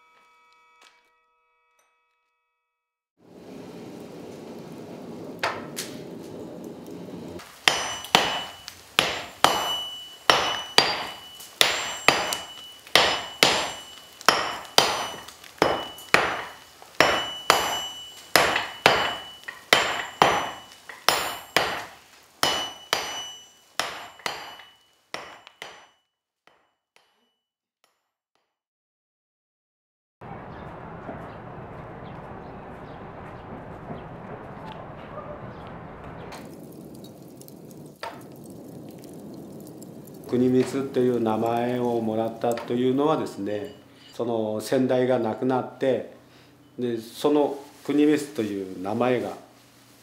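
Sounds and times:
forge fire rushing: 3.2 - 24.8, 30.2 - 43.8
hammer blows on steel: 7.4 - 25.9.

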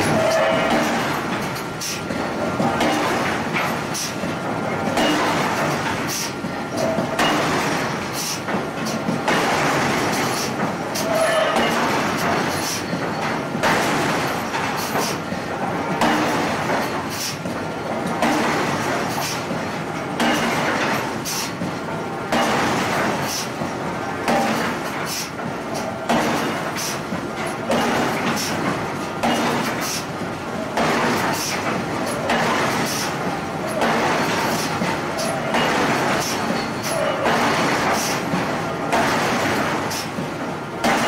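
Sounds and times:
power hammer striking metal: 0.0 - 4.1, 4.8 - 15.2, 15.9 - 17.4, 18.1 - 19.4, 20.1 - 21.5, 22.3 - 23.5, 24.3 - 25.3, 26.1 - 27.0, 27.6 - 28.6, 29.2 - 30.1, 30.7 - 39.7.

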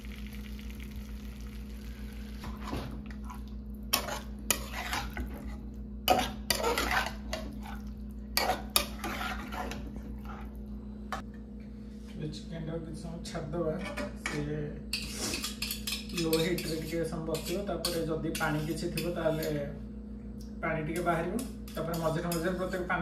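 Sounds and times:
metal spatula scraping a pan: 3.9 - 10.5, 13.8 - 19.6.

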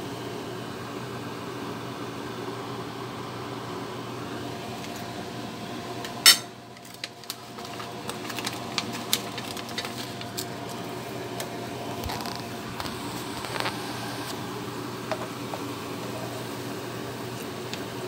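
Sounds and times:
steady mechanical hum: 0.0 - 18.0
plastic packet crinkling: 6.8 - 10.9, 12.0 - 13.8.

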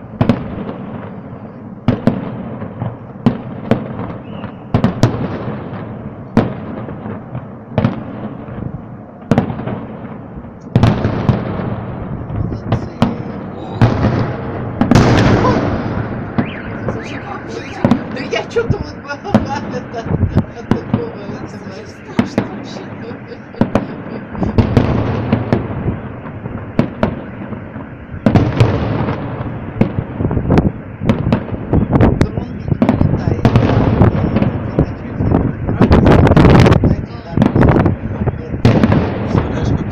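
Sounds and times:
rolling rumble: 0.0 - 39.9
firework shells bursting: 9.2 - 32.0.

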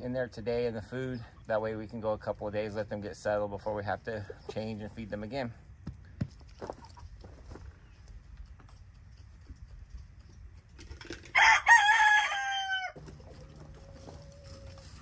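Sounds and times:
rooster crowing: 11.3 - 13.0.

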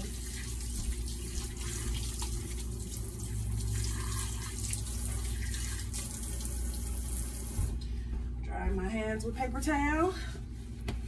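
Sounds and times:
faucet running: 0.0 - 7.8.

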